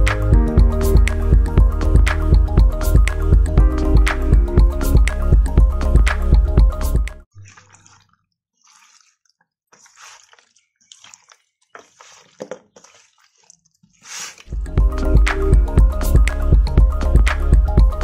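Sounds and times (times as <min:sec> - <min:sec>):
background music: 0:00.0 - 0:07.2, 0:14.5 - 0:18.0
wet squelching of raw chicken: 0:07.4 - 0:14.6.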